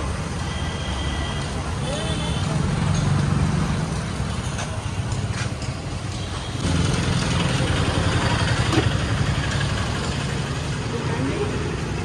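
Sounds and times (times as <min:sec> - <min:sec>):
street traffic: 0:00.0 - 0:12.0
vehicle engine idling: 0:06.6 - 0:12.0.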